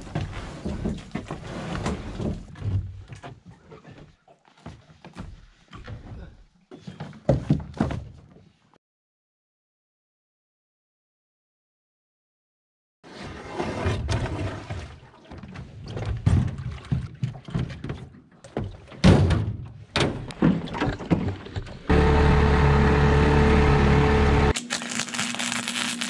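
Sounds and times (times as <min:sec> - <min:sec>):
footsteps in aluminium boat: 0:00.0 - 0:08.6
outboard motor running: 0:21.9 - 0:24.5.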